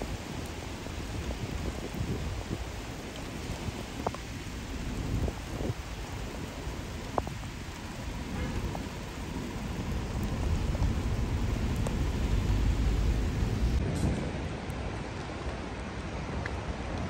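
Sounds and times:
heavy rain: 0.0s - 17.0s
low rumble: 9.5s - 13.9s.

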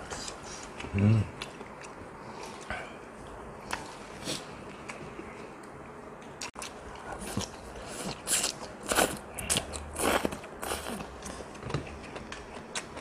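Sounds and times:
person chewing and smacking: 5.6s - 13.0s.

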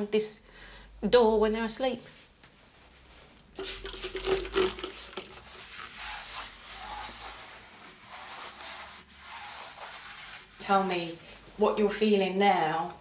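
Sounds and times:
scrubbing and wiping a surface: 2.8s - 11.2s.

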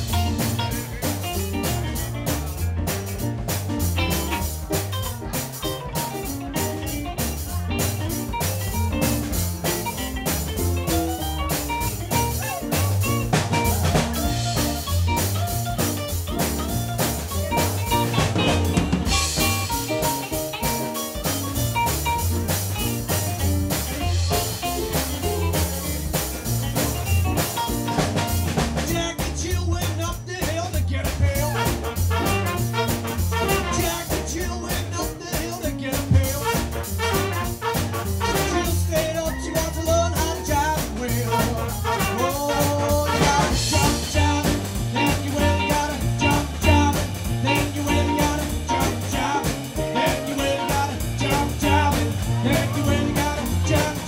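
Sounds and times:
electric guitar lead: 0.0s - 28.6s, 41.7s - 54.0s
drum kit: 0.0s - 54.0s
upright bass: 0.0s - 54.0s.

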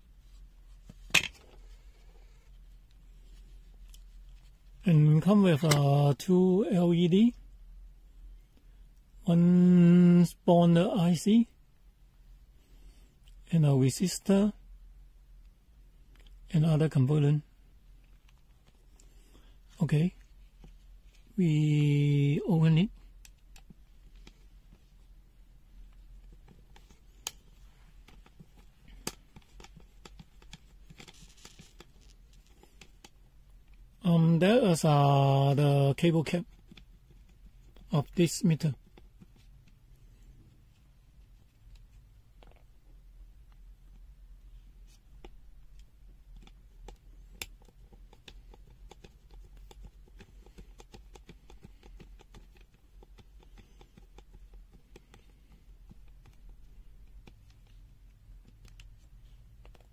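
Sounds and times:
low steady hum: 0.0s - 59.9s
rustling: 23.5s - 33.8s
clicks and taps of small parts: 45.2s - 57.8s.

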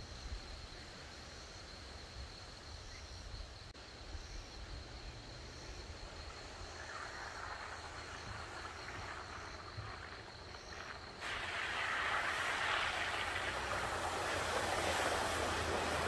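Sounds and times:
insects buzzing: 0.0s - 16.0s
rushing noise: 6.8s - 16.0s.

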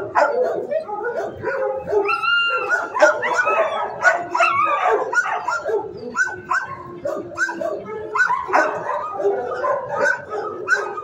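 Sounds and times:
dogs barking and yelping: 0.0s - 11.0s.

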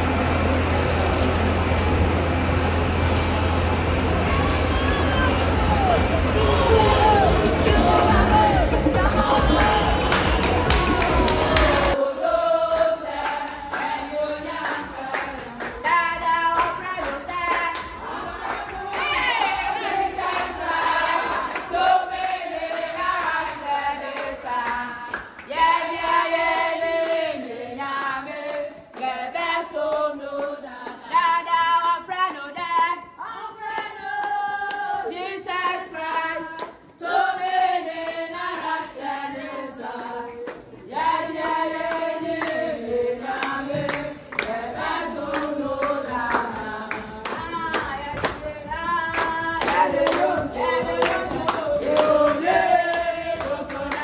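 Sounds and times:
women singing in chorus: 6.7s - 54.0s
rhythmic clapping: 7.1s - 54.0s.

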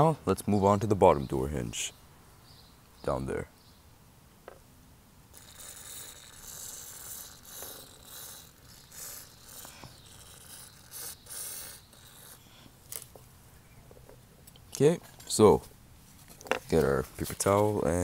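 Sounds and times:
aerosol spray hissing squirts: 5.3s - 12.3s.

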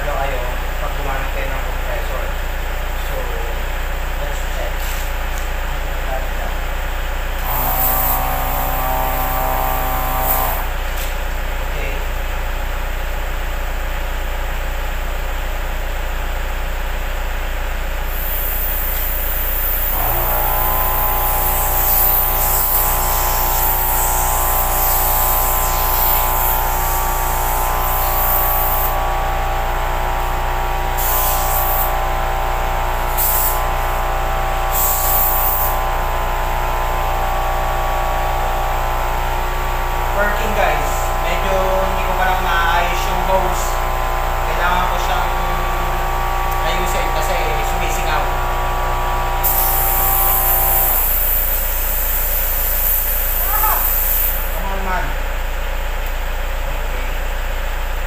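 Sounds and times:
air compressor motor running: 0.0s - 58.0s
steady low hum: 17.2s - 53.6s
air hissing: 18.1s - 29.2s, 30.2s - 32.0s, 32.8s - 35.8s, 48.7s - 54.6s.

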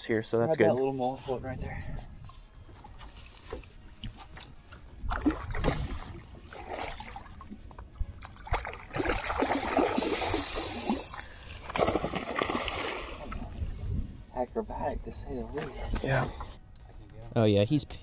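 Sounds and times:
fish splashing at water surface: 8.5s - 13.2s.

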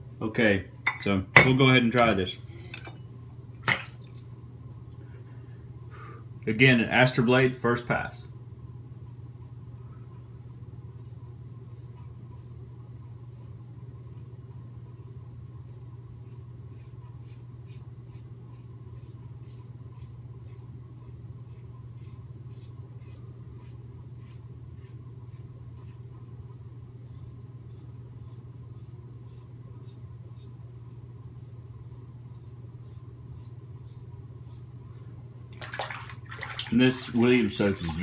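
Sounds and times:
razor scraping stubble: 27.0s - 34.8s.

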